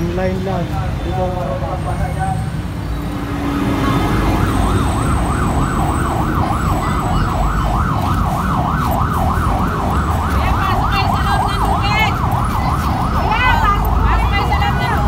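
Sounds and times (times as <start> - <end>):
low street rumble: 0.0 - 15.0
siren yelping: 3.1 - 15.0.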